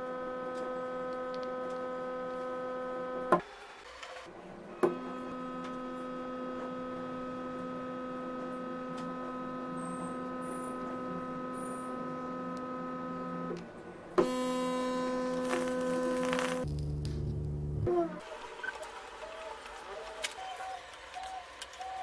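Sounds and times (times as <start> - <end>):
transformer humming electrical buzz: 4.8 - 13.6, 14.2 - 21.7.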